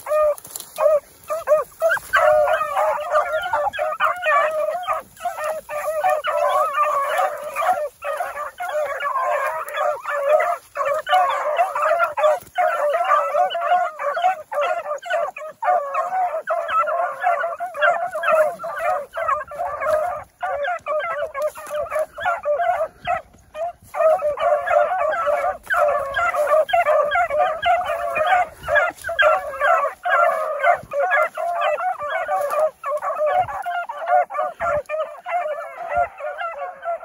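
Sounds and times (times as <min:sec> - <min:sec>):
beagles baying: 0:00.0 - 0:37.0.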